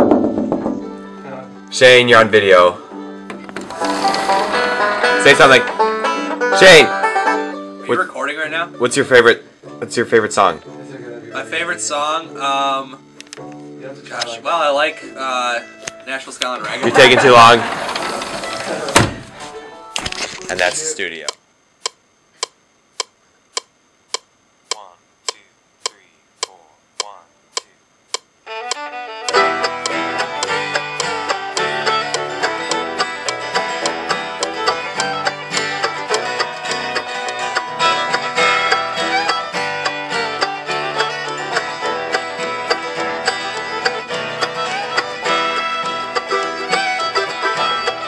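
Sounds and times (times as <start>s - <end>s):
strummed acoustic guitar: 3.3s - 9.0s, 16.0s - 19.6s, 28.7s - 48.0s
banjo picking quick runs: 3.8s - 7.6s, 16.6s - 17.9s
metronome clicks ticking: 21.2s - 41.7s.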